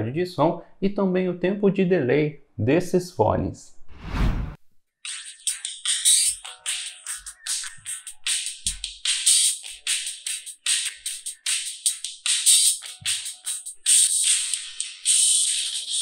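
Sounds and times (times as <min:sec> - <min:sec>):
thin electronic music from earbuds: 0:05.0 - 0:16.0.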